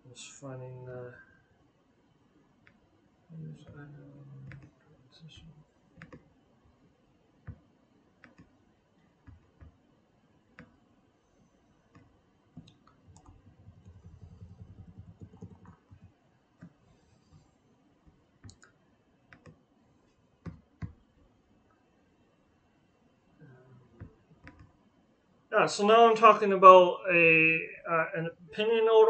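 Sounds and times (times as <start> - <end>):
computer mouse clicks: 6.0 - 6.2, 8.2 - 8.5, 11.9 - 17.4, 18.4 - 19.6, 24.0 - 24.8
keyboard clicks: 6.0 - 6.2, 8.2 - 8.5, 11.9 - 16.8, 18.4 - 19.6, 24.0 - 24.7.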